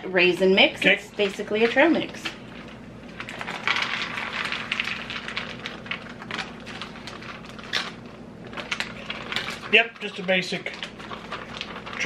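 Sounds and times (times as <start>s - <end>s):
plastic packaging crinkling: 0.8s - 12.0s.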